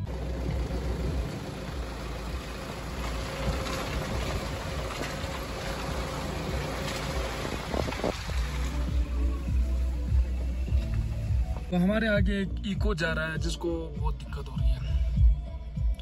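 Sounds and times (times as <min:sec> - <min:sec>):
car engine running: 0:00.0 - 0:14.0
tyres rolling over slushy snow: 0:00.1 - 0:11.2.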